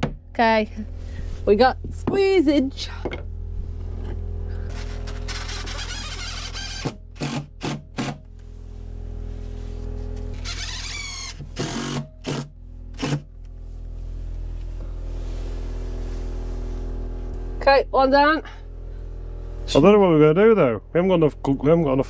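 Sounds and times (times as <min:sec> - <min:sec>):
steady low hum: 0:00.0 - 0:22.0
drill driving screws into wood: 0:05.1 - 0:08.2, 0:10.4 - 0:13.3.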